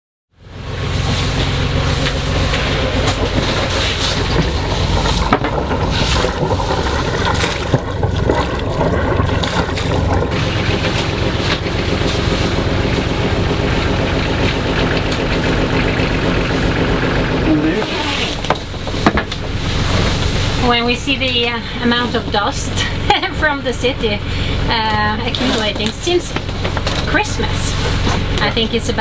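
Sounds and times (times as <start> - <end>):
knocks and clicks: 1.4 - 16.2.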